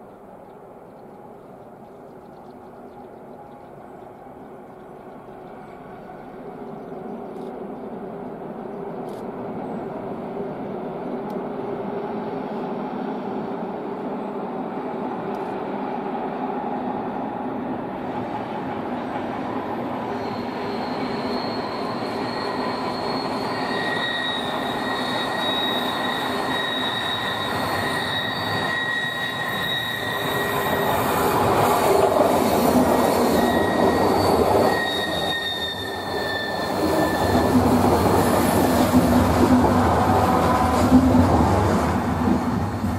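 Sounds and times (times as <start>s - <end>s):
passenger train passing: 0.0s - 42.9s
wheel flanges squealing: 20.0s - 39.1s.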